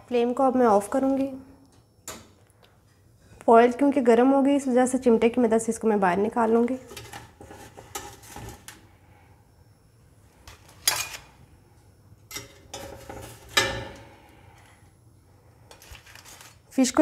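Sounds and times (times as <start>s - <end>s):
aluminium foil crinkling: 15.7s - 17.0s.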